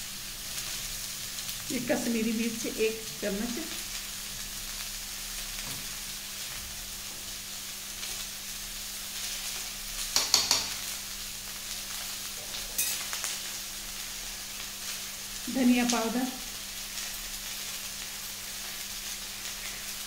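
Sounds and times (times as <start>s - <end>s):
food sizzling in oil: 0.0s - 20.0s
spatula clinks: 12.8s - 13.1s.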